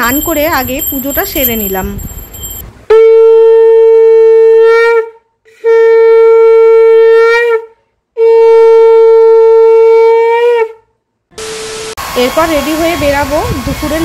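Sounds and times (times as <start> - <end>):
conch shell blown: 2.9 - 12.2.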